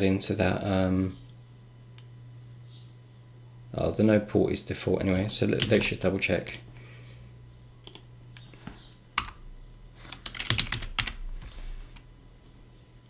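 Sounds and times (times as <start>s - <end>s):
low steady hum: 0.0s - 13.0s
computer keyboard typing: 5.5s - 6.6s, 7.8s - 8.1s, 9.2s - 9.4s, 10.0s - 11.2s.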